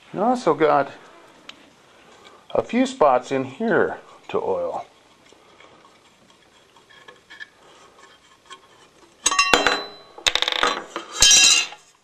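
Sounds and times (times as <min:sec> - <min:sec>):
metal parts clattering: 0:09.2 - 0:11.9.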